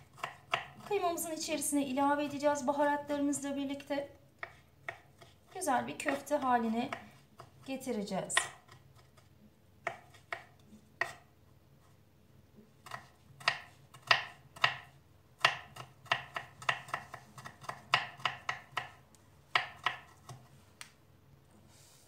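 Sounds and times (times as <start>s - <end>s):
knife chopping on wooden board: 0.0s - 0.9s, 4.4s - 7.7s, 8.4s - 9.2s, 9.8s - 11.3s, 12.8s - 20.5s.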